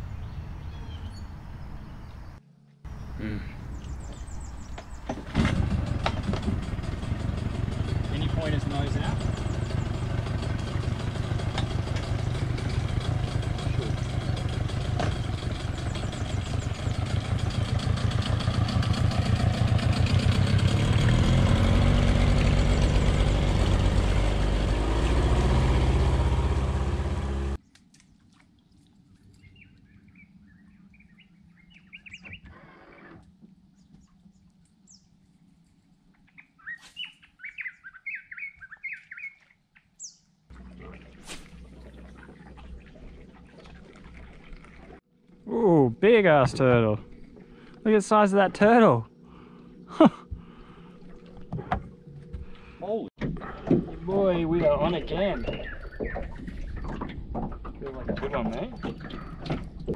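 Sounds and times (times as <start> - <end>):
small birds chirping: 0.0 - 5.2, 8.1 - 13.0, 13.6 - 17.3, 29.2 - 33.1, 36.1 - 40.4, 54.1 - 57.1
boat motor running: 3.2 - 27.6, 40.5 - 59.9.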